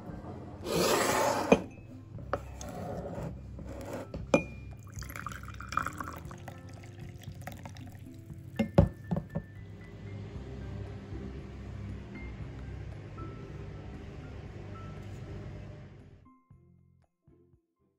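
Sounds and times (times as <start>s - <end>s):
glass and ceramic clinks: 4.3s - 6.4s, 8.6s - 9.4s
tea pouring into a cup: 4.7s - 9.2s.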